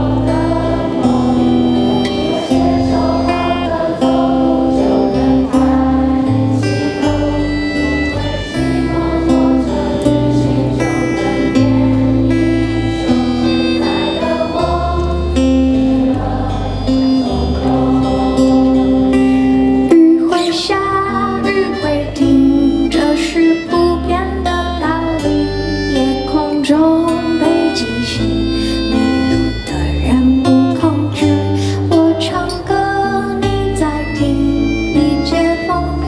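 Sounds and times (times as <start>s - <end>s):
audience singing along: 0.0s - 25.3s
accordion: 0.0s - 36.0s
keyboard: 0.0s - 36.0s
live pop song: 0.0s - 36.0s
woman singing into microphone: 19.8s - 36.0s.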